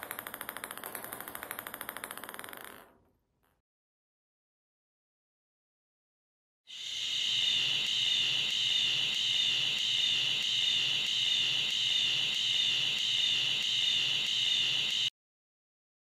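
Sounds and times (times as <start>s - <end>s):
ping-pong balls bouncing: 0.0s - 3.2s.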